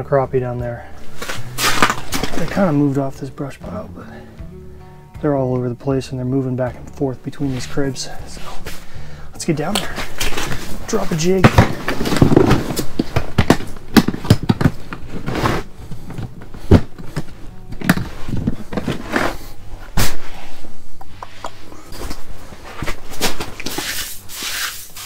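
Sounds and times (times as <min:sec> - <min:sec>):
gear bag rustling: 0:01.0 - 0:02.9.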